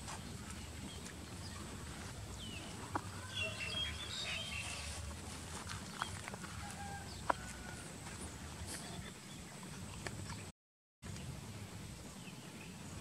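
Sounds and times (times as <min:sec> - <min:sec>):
high chirping animal calls: 0:01.4 - 0:05.1.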